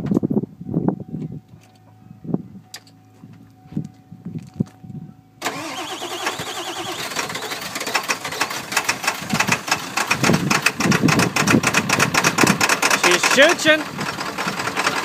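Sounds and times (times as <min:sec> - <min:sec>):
diesel engine cranking and starting: 0:05.4 - 0:15.0.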